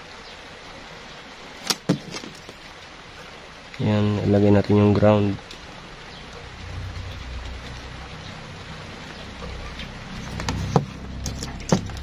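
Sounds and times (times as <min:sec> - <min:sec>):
low hum: 0:05.4 - 0:12.0.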